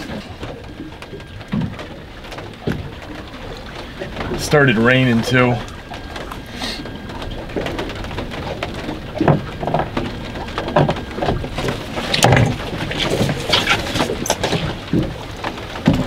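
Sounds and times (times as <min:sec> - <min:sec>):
rain pattering: 0:00.0 - 0:16.0
handling knocks and rustles: 0:07.6 - 0:16.0.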